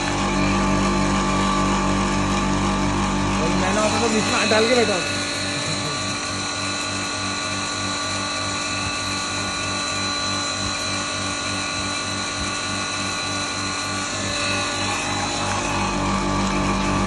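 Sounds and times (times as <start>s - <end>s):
grinding mill running: 0.0s - 17.0s.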